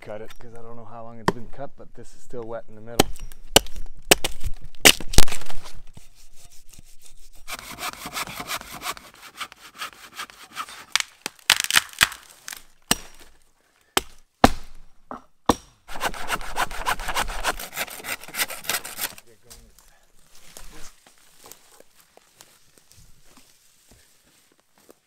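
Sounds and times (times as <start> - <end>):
hand saw cutting wood: 5.9 - 11.0, 15.9 - 19.2.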